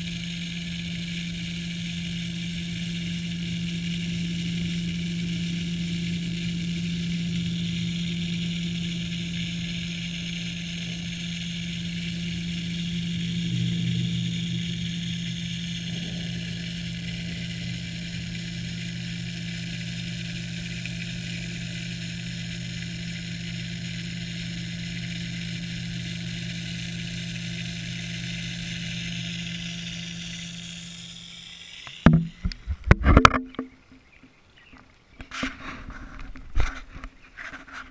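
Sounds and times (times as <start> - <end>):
underwater pump hum: 0.0 - 37.9
knocks and water splashes: 32.0 - 37.1.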